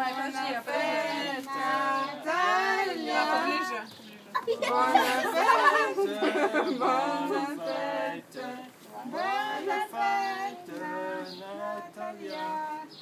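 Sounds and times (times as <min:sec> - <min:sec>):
group singing birthday song: 0:00.0 - 0:13.0.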